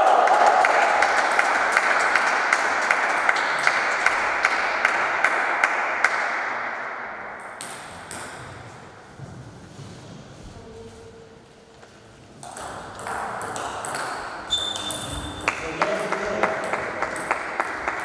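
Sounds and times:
table tennis ball bouncing: 12.4 - 18.0.

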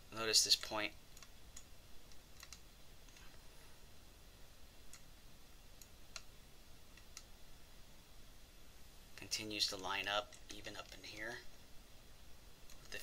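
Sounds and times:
computer mouse clicks: 0.5 - 3.4, 5.8 - 6.3, 6.9 - 7.3, 12.6 - 13.0.

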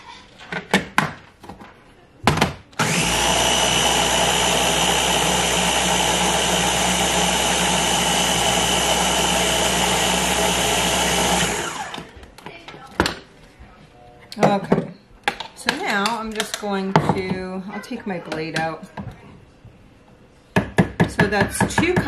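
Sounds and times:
electric food chopper running: 2.8 - 12.2.

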